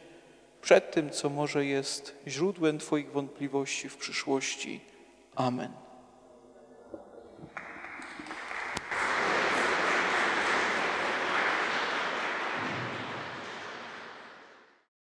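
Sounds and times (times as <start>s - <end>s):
audience applauding: 7.5s - 14.9s.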